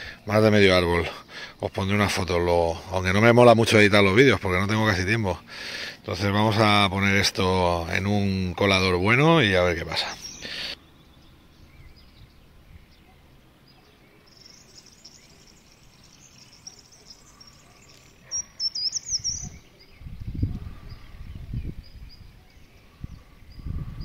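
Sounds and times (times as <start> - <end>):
small birds chirping: 0.0 - 24.0
low rumbling microphone noise: 19.2 - 24.0.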